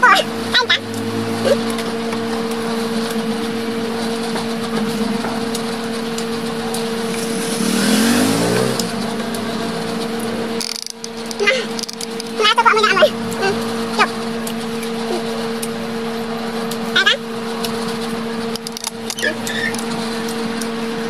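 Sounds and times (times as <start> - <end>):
steady hum: 0.0 - 21.0
vehicle engine passing by: 0.4 - 11.4.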